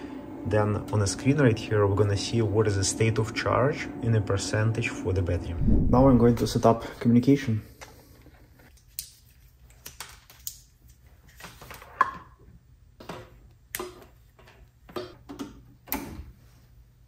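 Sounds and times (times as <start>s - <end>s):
low steady hum: 0.0s - 8.7s.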